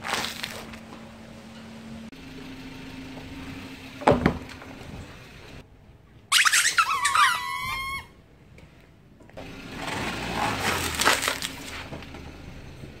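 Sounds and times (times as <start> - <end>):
styrofoam container crunching: 0.0 - 0.8, 10.6 - 11.8
rubber balls squealing: 6.3 - 8.2.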